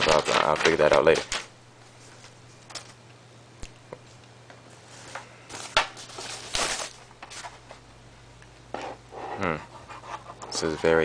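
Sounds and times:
cardboard packaging rustling: 0.0 - 3.0, 4.8 - 7.8.

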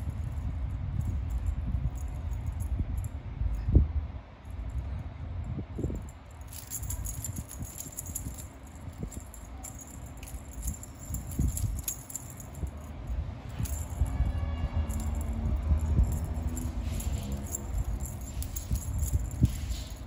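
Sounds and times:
small metal bell jingling: 5.9 - 20.0
low handling bumps: 14.8 - 20.0.

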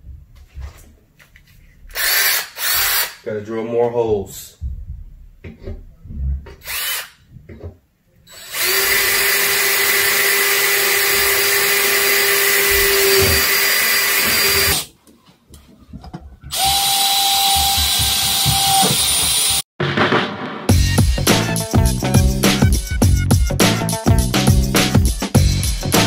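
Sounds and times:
cordless drill boring metal: 2.0 - 3.2, 6.6 - 7.1, 8.3 - 14.9, 16.5 - 19.6.

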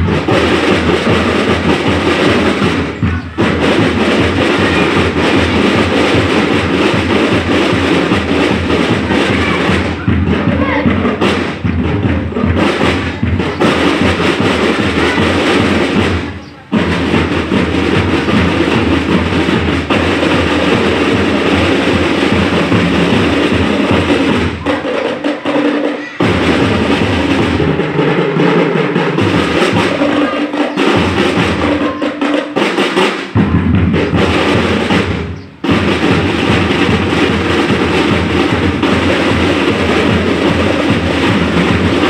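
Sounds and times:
marching drums: 0.0 - 42.0.

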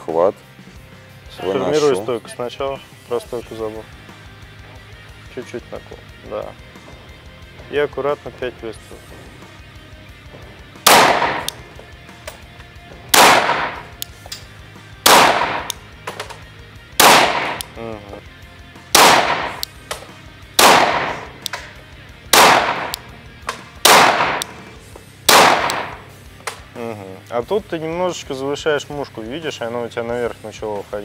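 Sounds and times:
pistol shots with echo: 10.8 - 11.6, 13.1 - 14.0, 15.0 - 15.8, 17.0 - 17.8, 18.9 - 19.8, 20.6 - 21.6, 22.2 - 24.6, 25.3 - 26.1.

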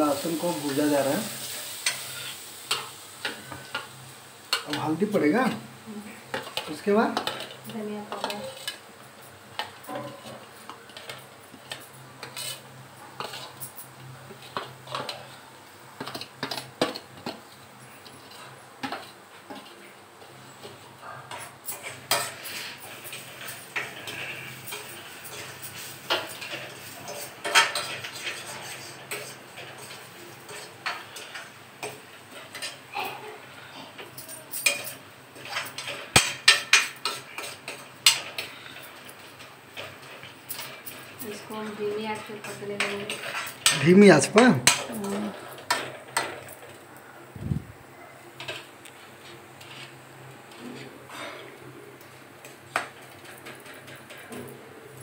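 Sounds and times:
metal spoon clinking in pan: 6.3 - 8.8, 34.3 - 39.2.

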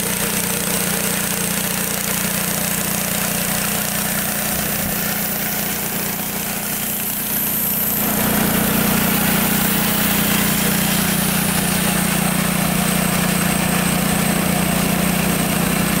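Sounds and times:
engine idling: 0.0 - 16.0.

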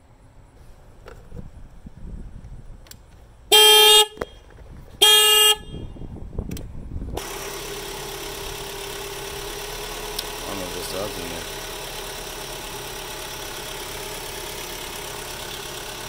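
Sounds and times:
car horn honks: 3.5 - 4.4, 5.0 - 6.0
car engine idling: 7.0 - 16.0.

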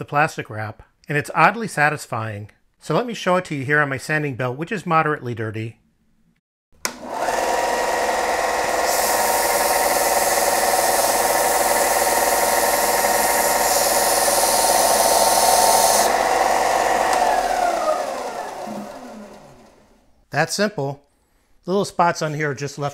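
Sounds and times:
belt sander running: 6.8 - 20.0
cleaning stick hissing on sanding belt: 8.6 - 16.2.

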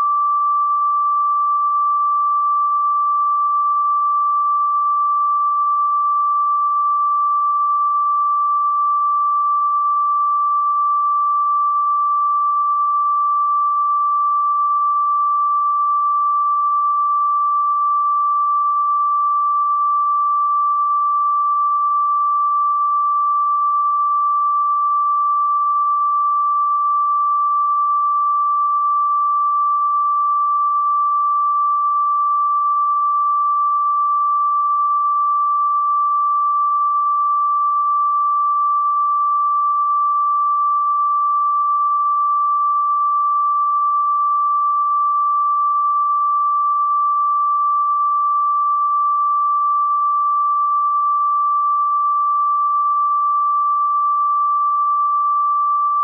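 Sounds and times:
high electronic sine tone: 0.0 - 56.0.

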